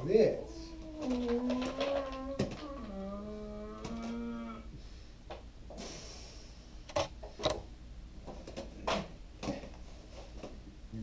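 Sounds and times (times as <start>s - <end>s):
vocal hum: 0.4s - 4.8s.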